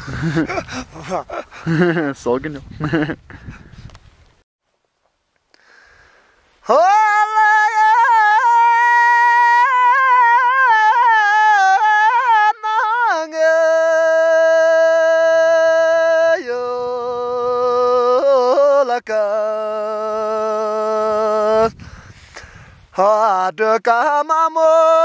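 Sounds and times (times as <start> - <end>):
singer breathing: 5.5 - 6.6, 21.7 - 22.9
man singing unaccompanied: 6.6 - 21.8, 22.9 - 25.0.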